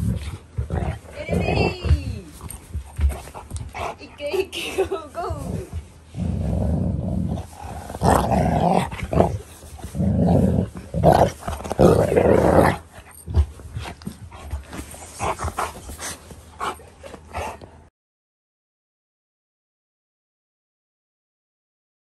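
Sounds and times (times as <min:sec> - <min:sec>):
dog growling in play: 0:00.0 - 0:04.0, 0:04.8 - 0:17.8.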